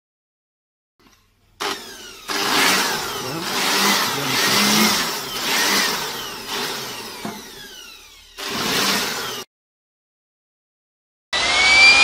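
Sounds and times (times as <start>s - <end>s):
electric air blower running: 1.6s - 9.5s.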